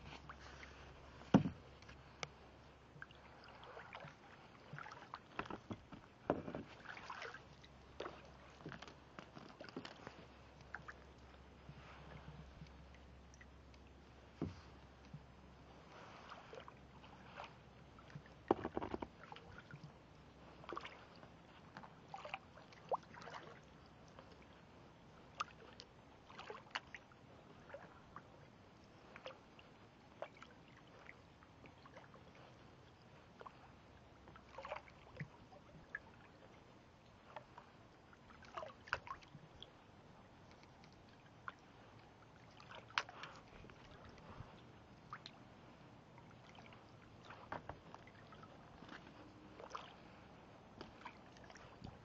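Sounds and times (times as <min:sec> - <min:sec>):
water dripping from paddle: 0:03.0 - 0:05.6, 0:06.8 - 0:11.4, 0:12.6 - 0:15.3, 0:20.6 - 0:24.4, 0:34.3 - 0:39.8, 0:40.4 - 0:45.4
kayak paddle splashing water: 0:03.0 - 0:08.8, 0:15.8 - 0:23.7, 0:34.3 - 0:36.2, 0:37.3 - 0:39.5, 0:41.3 - 0:52.0.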